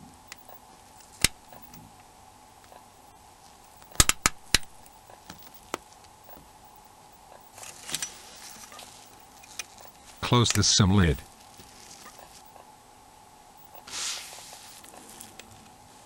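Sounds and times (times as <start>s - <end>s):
phone being handled rustle: 2.6s - 12.6s, 13.6s - 15.8s.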